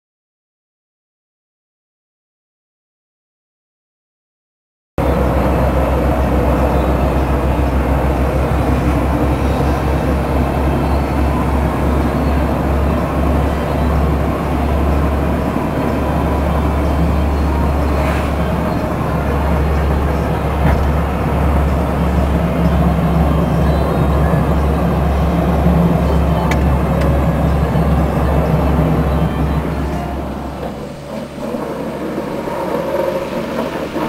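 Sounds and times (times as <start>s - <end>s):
dense rushing noise: 5.0s - 34.0s
truck engine drone: 5.0s - 34.0s.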